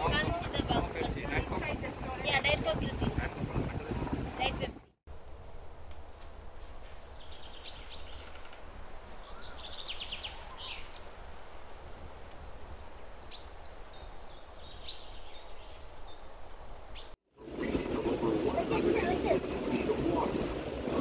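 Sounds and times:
birds chirping in trills: 7.0s - 11.2s, 12.3s - 17.9s.

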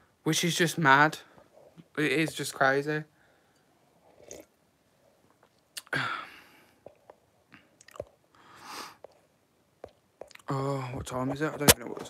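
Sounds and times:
person sipping a drink: 4.0s - 4.6s, 5.4s - 6.0s, 6.8s - 9.2s.

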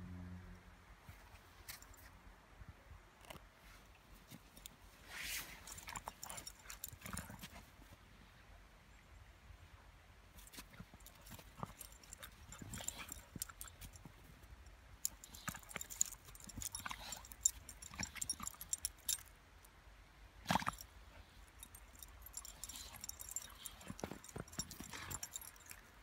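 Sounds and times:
paws crunching and scuffling in snow: 3.6s - 8.1s, 10.3s - 19.2s, 20.5s - 26.0s
collar tags jingling: 4.3s - 7.7s, 10.3s - 19.7s, 20.4s - 26.0s.

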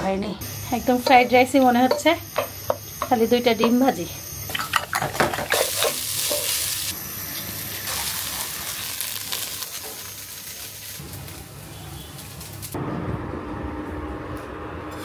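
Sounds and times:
rice sizzling in a frying pan: 4.9s - 12.8s.

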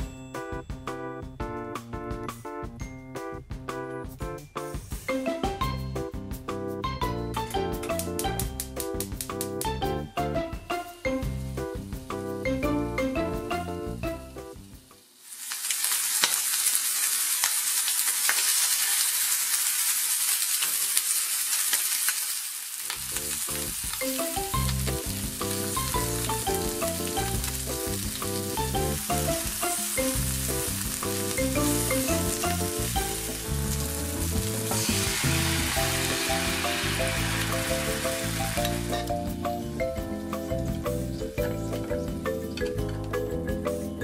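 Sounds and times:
background music: 0.0s - 15.0s, 23.1s - 44.0s
chicken sizzling in frying pan: 14.2s - 39.7s.

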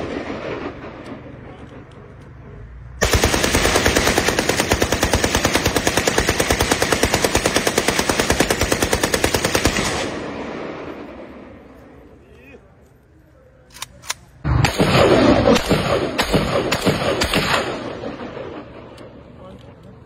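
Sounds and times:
gunfire echoes: 0.0s - 1.9s, 3.0s - 12.1s, 14.4s - 19.4s
rifle firing full auto: 3.0s - 10.4s, 14.5s - 19.1s.

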